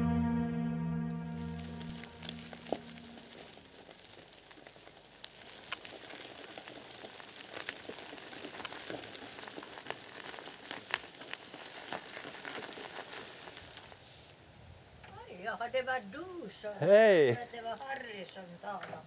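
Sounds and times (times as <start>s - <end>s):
light rain hiss: 1.3s - 19.0s
raindrops ticking on surfaces: 1.4s - 14.0s, 17.6s - 19.0s.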